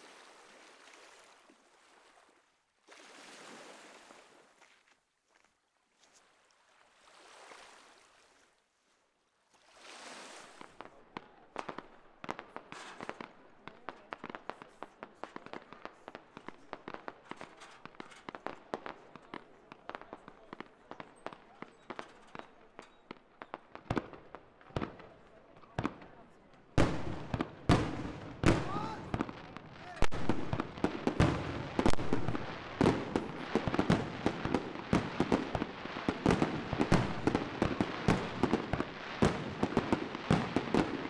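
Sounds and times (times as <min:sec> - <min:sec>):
crackling and popping: 0:26.8 - 0:40.9.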